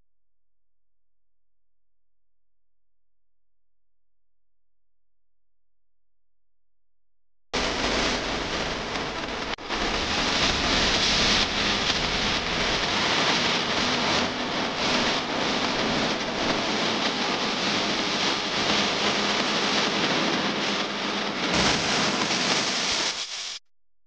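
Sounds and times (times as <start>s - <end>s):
loud steady hiss: 7.6s - 23.6s.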